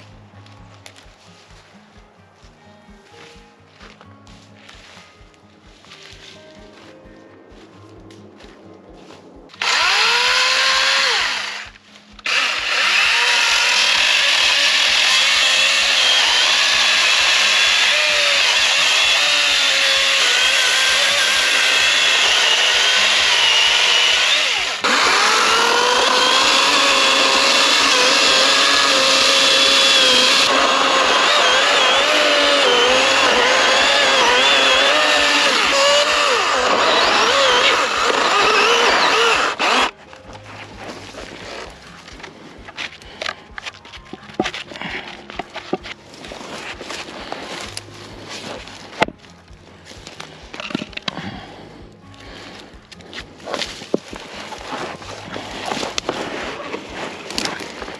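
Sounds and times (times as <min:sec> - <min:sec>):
electric chainsaw cutting wood: 0:09.5 - 0:40.0.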